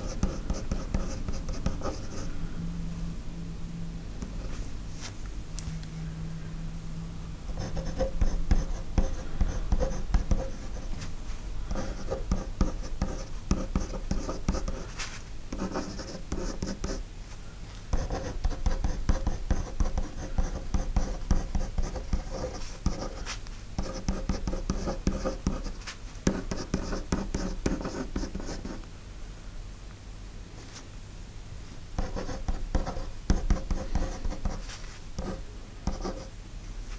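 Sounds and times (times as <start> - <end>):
pencil writing on paper: 0.0 - 2.3, 7.6 - 11.0, 11.7 - 17.0, 18.0 - 28.8, 32.0 - 36.3.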